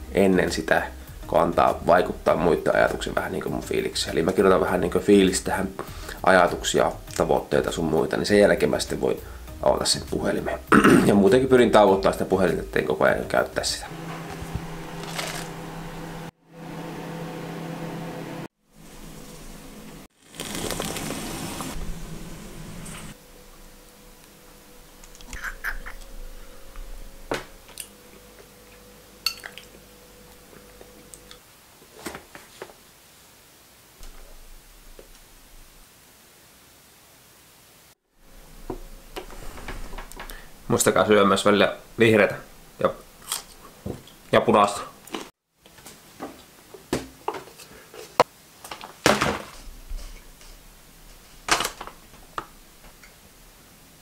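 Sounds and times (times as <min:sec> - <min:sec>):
faint steady hum: 0:21.8 - 0:31.9
metal spoon clinking on ceramic bowl: 0:29.2 - 0:29.7.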